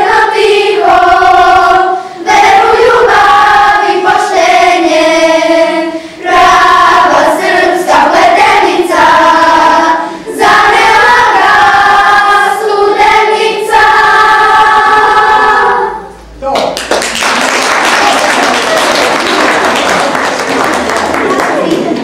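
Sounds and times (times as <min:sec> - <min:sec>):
children's choir singing: 0:00.0 - 0:16.2.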